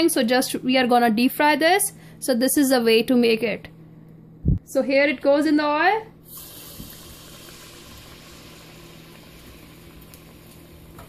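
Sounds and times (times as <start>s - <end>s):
dough sizzling in hot oil: 6.3s - 11.0s.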